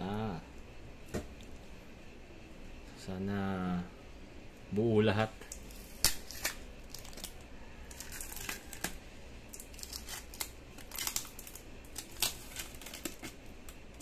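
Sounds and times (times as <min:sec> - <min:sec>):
packing tape peeling: 0:05.5 - 0:14.0.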